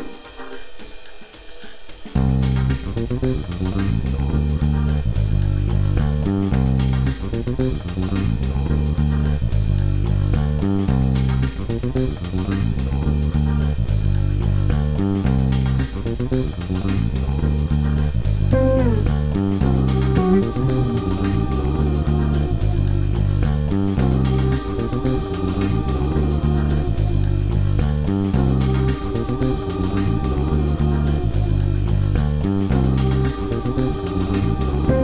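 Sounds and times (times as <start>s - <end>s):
bass and guitar riff over beat: 2.2s - 22.0s.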